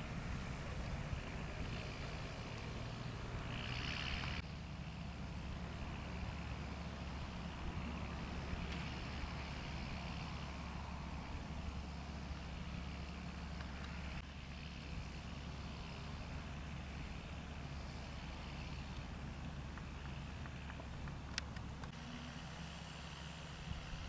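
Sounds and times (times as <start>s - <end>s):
distant tractor diesel engine drone: 0.0s - 24.0s.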